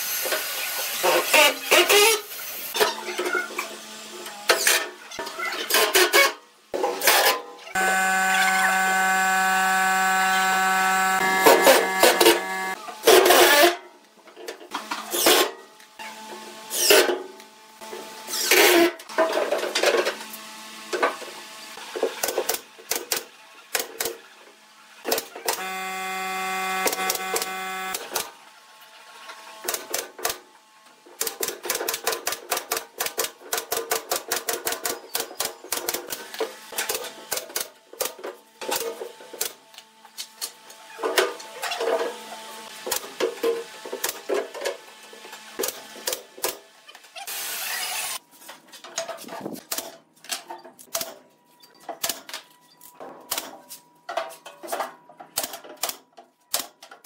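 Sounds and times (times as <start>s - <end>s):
pneumatic nail gun shots: 11.2s - 13.8s, 15.1s - 15.5s, 26.6s - 28.3s, 31.2s - 39.6s.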